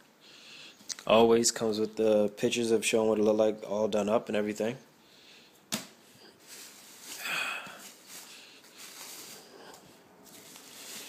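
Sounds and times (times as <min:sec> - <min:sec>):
bubble wrap rustling and crinkling: 0:06.2 - 0:11.0.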